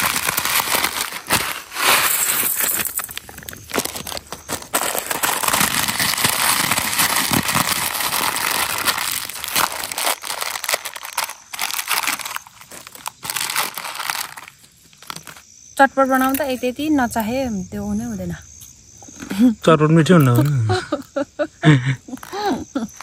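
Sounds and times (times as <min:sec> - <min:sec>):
dry food crinkling and crunching: 0:00.0 - 0:16.6, 0:22.0 - 0:23.0.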